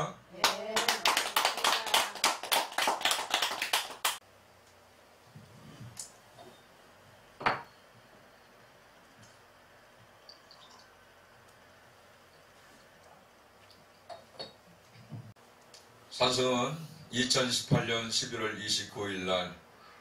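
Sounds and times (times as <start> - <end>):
audience applauding: 0.4 - 4.2.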